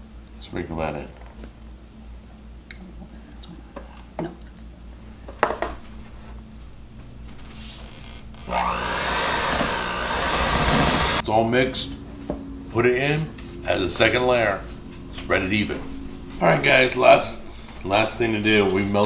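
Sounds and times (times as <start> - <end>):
electric hand mixer whining: 8.4 - 11.2.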